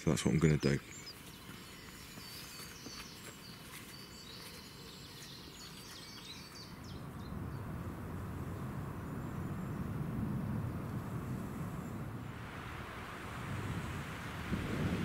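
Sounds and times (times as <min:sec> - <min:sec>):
small birds chirping: 0:00.0 - 0:12.2
low rumble: 0:06.8 - 0:15.0.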